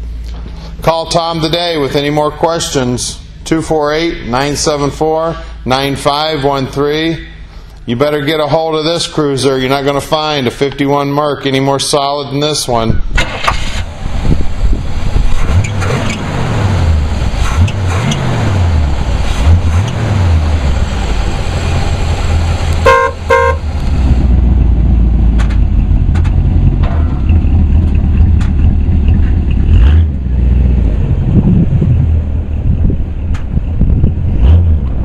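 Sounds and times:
car engine revving: 0:13.2 - 0:35.0
car horn toots: 0:22.8 - 0:23.7.

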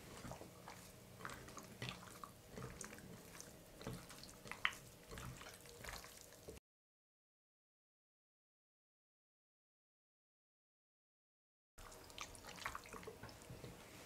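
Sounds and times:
wet squishes of raw chicken: 0:00.0 - 0:06.6, 0:11.8 - 0:13.8.

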